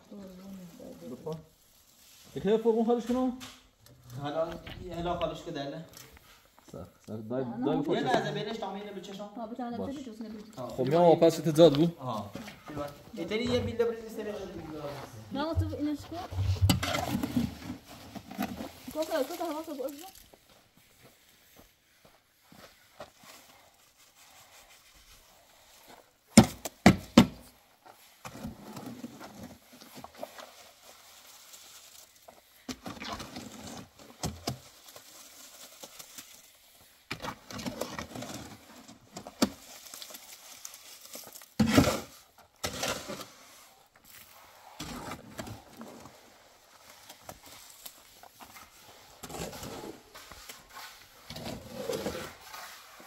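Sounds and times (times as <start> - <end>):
shovel scraping a wheelbarrow: 16.3 - 19.5, 37.2 - 39.0, 41.4 - 46.4, 48.3 - 53.0.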